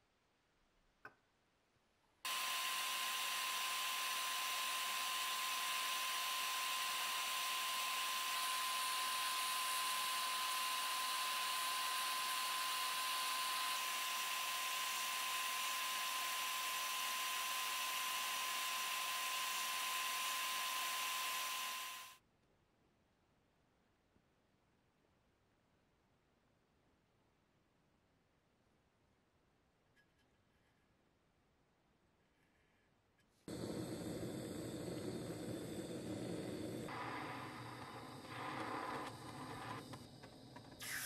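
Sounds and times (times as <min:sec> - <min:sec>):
sandblasting gun hissing: 0:40.8 - 0:41.0.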